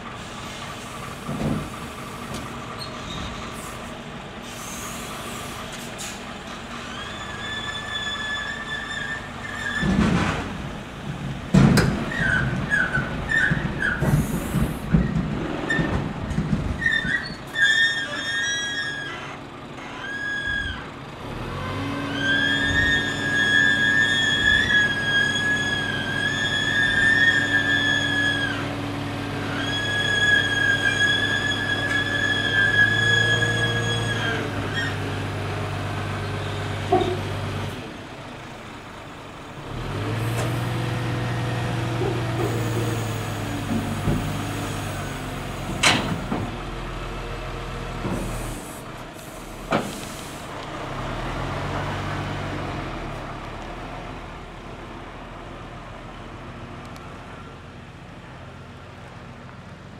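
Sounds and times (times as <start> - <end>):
diesel engine revving: 0.0 - 59.9
air brake clunks: 0.2 - 6.3, 11.6 - 15.9, 48.0 - 50.5
short air hiss: 3.6 - 6.2.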